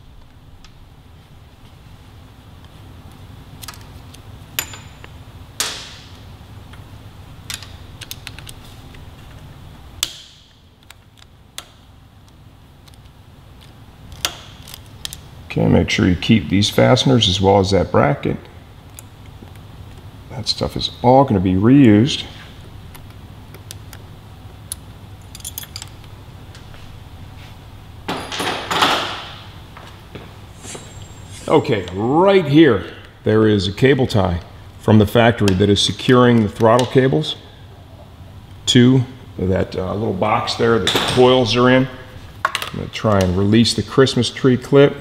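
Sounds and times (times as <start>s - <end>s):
low steady hum: 0.0s - 45.0s
small metal parts clinking: 25.2s - 26.0s.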